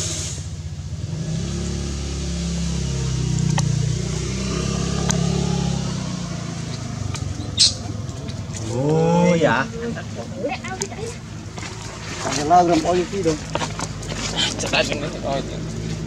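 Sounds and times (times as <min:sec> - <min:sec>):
short sharp hiss: 0:00.0 - 0:00.6
vehicle engine passing by: 0:00.0 - 0:16.0.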